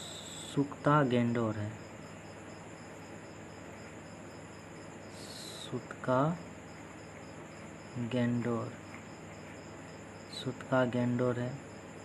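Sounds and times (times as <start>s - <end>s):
cricket trilling: 0.0s - 12.0s
low steady background hiss: 0.0s - 12.0s.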